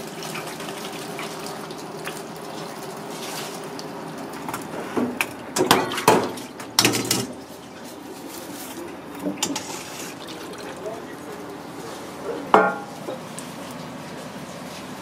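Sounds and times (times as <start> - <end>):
steel kitchenware clattering in sink: 5.6 - 7.4, 9.2 - 10.4, 12.4 - 13.3.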